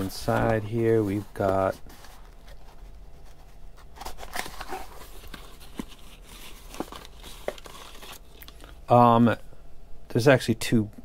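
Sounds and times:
cardboard rustling and scraping: 0.0s - 8.4s.

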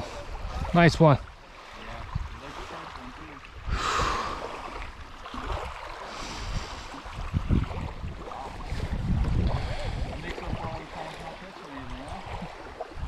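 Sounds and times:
small waves lapping: 0.0s - 13.0s
wind buffeting microphone: 1.9s - 2.6s, 3.4s - 11.4s.

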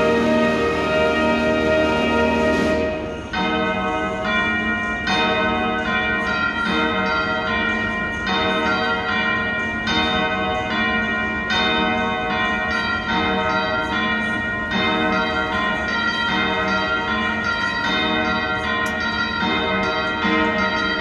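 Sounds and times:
military band brass chords: 0.0s - 3.2s
bell-like ringing: 0.0s - 21.0s.

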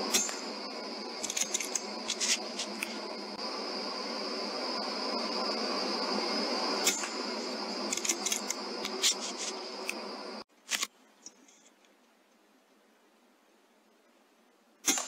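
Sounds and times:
hiss with high whine: 0.0s - 10.5s.

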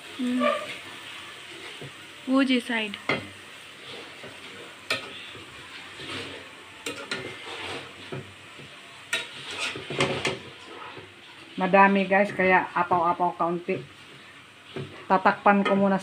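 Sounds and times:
food sizzling: 0.0s - 16.0s
spatula scraping metal pan: 0.2s - 0.9s, 3.7s - 8.2s, 9.1s - 11.1s.

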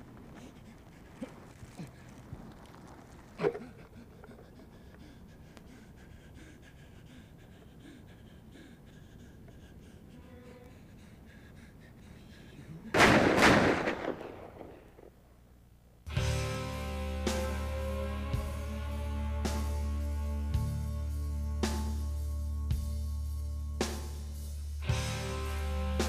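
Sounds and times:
man panting and groaning: 0.1s - 2.2s, 3.4s - 13.0s
loud blast: 13.0s - 14.8s.

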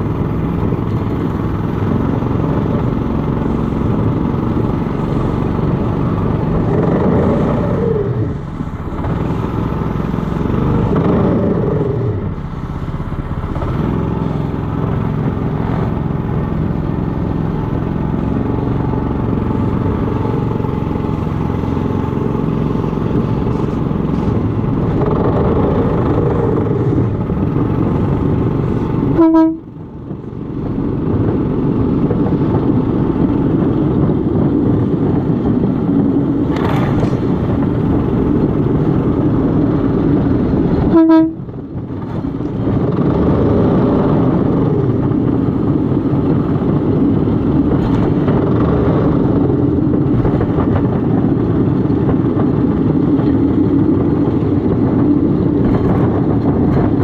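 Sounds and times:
railcart engine and wheels: 0.0s - 57.0s
short horn toot: 29.2s - 29.7s, 40.9s - 41.4s.

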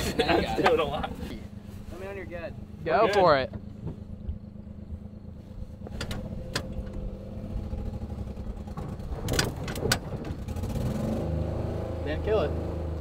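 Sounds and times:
small truck engine pulling away: 1.4s - 13.0s
sharp clicks and knocks: 5.8s - 7.1s, 8.6s - 10.5s.

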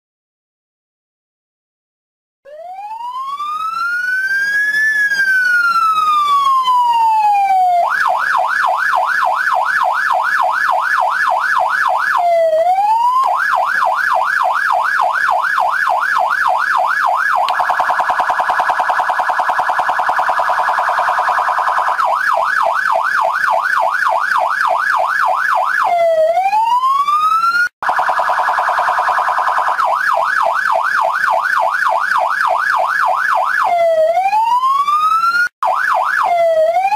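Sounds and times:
police siren wailing and yelping: 2.5s - 36.9s.

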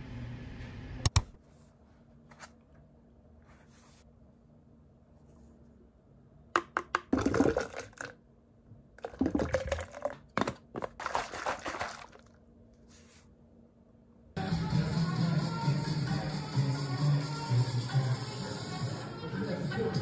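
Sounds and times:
liquid splashing in shaker bottle: 6.6s - 8.2s, 9.0s - 12.4s.

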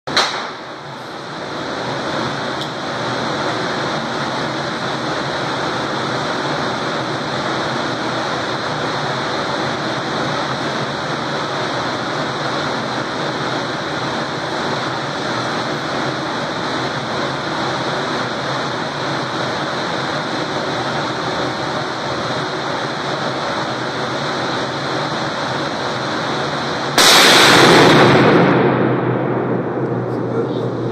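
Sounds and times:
rifle shot echoing indoors: 0.1s - 0.8s, 27.0s - 30.2s.

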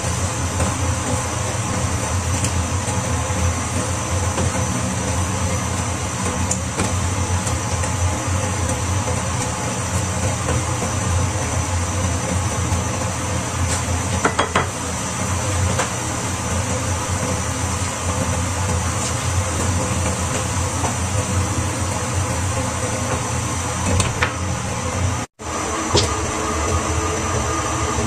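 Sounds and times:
cabbage sizzling in a frying pan: 0.0s - 24.5s
wooden spatula knocking on pan: 14.2s - 14.8s.

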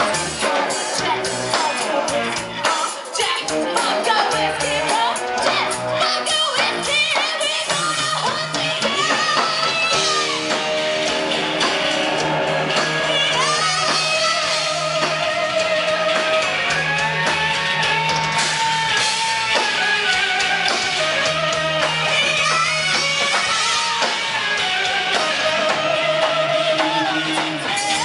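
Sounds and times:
live rock band playing: 0.0s - 28.0s
electric guitar lead notes: 8.8s - 28.0s.

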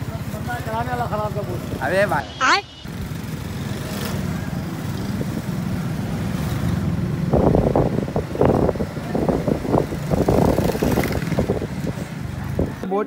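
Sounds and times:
motorcycle engine running: 2.9s - 12.8s
wind buffeting microphone: 6.8s - 12.9s.

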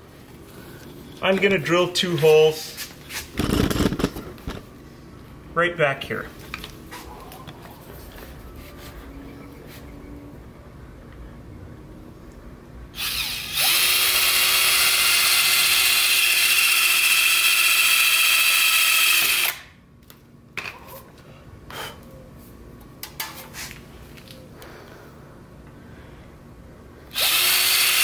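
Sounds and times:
cordless drill whining: 13.0s - 19.6s, 27.1s - 28.0s.

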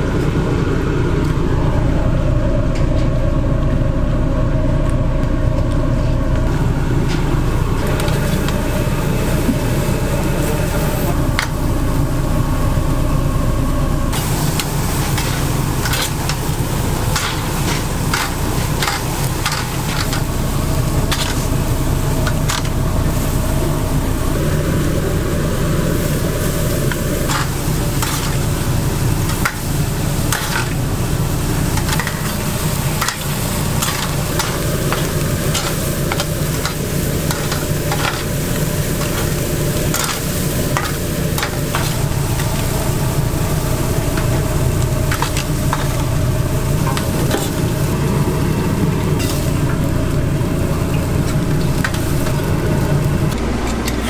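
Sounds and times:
low rumble: 0.0s - 54.0s
meat sizzling on a grill: 6.5s - 13.2s, 14.1s - 54.0s
spatulas scraping on grill grate: 14.2s - 23.4s, 26.3s - 48.2s, 49.0s - 54.0s.

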